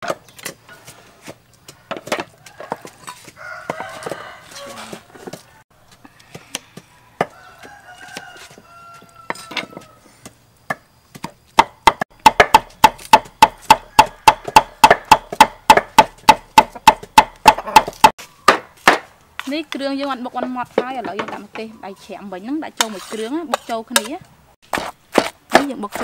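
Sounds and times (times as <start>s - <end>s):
cleaver chopping on wooden board: 10.7s - 19.1s, 24.7s - 26.0s.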